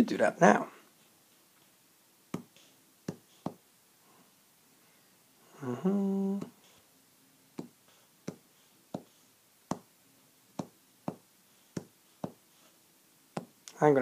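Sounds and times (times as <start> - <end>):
man humming: 5.5 - 6.6.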